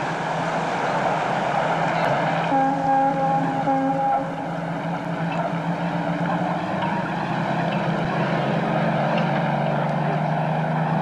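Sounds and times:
rushing noise: 0.0 - 11.0
low mechanical drone: 2.6 - 11.0.

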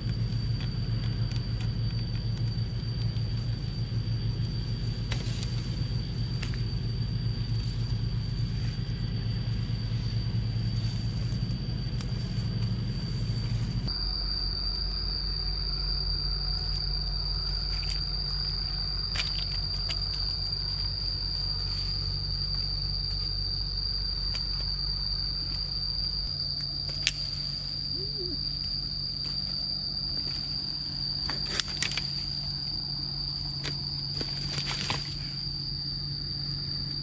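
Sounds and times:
high-pitched insect drone: 0.0 - 37.0
low background hum: 0.0 - 37.0.

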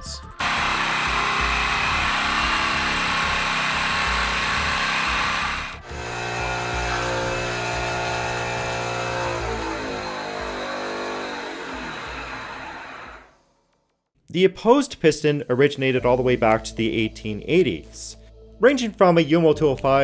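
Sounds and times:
small engine humming: 0.3 - 13.3
engine running loud buzz: 0.4 - 13.3.

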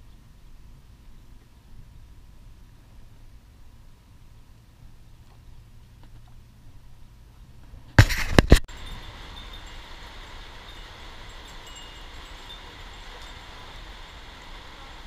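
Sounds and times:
light rain falling on pond: 0.0 - 15.0
loud knocks and rubbing: 8.0 - 8.6.

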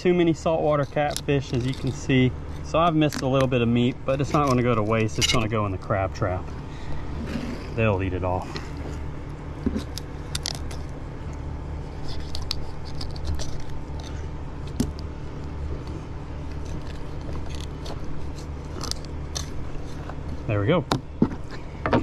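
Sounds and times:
low hum: 0.0 - 22.0
knife scraping on fish bone: 0.6 - 3.5, 11.8 - 14.4.

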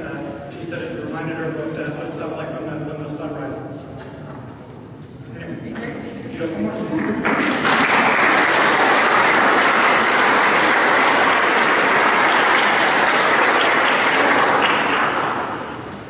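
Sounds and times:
audience applauding: 7.0 - 16.0.

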